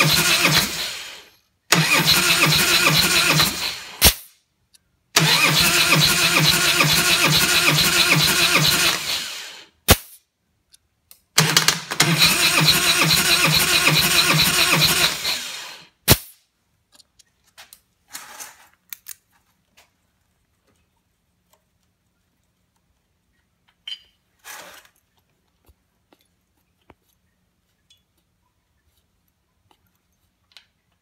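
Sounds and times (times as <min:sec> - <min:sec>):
starter cranking engine: 0:00.0 - 0:04.0, 0:05.2 - 0:09.7, 0:11.4 - 0:16.0
faint clicks and rustling of hose: 0:16.8 - 0:31.0.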